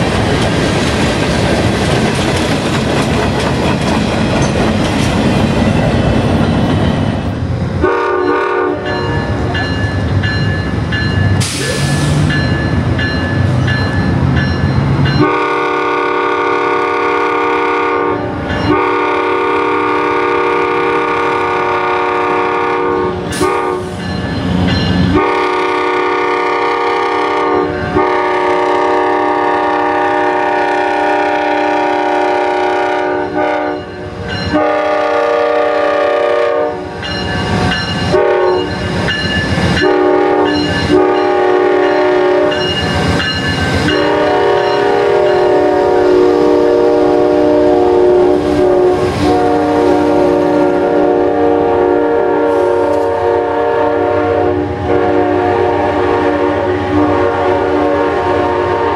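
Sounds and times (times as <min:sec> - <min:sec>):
locomotive air horn blasts: 0:07.8 - 0:09.3, 0:15.2 - 0:24.0, 0:25.1 - 0:33.9, 0:34.5 - 0:36.9, 0:38.1 - 0:38.7, 0:39.8 - 0:42.6, 0:43.9 - 0:58.9.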